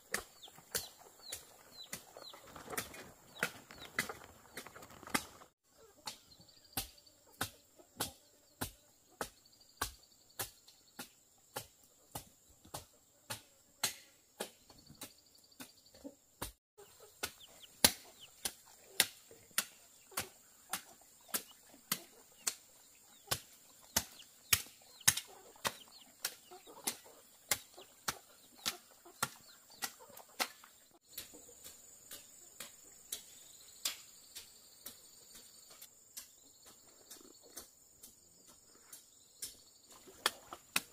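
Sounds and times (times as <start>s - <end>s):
chopping strokes: 16.4s - 35.0s.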